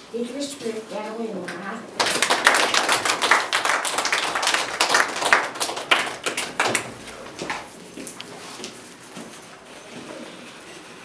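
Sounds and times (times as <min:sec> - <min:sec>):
people clapping: 0:01.5 - 0:08.2.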